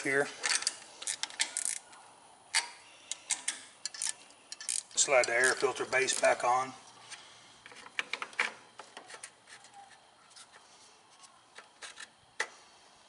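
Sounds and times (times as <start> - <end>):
plastic parts clicking and knocking: 7.6 - 10.0.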